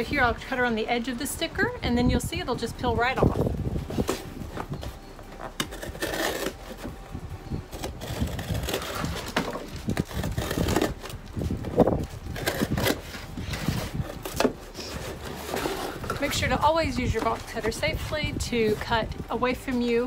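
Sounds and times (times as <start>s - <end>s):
cardboard rustling: 3.2s - 7.0s, 7.7s - 20.0s
box cutter slicing cardboard: 5.5s - 6.9s, 7.7s - 11.2s, 12.3s - 16.3s.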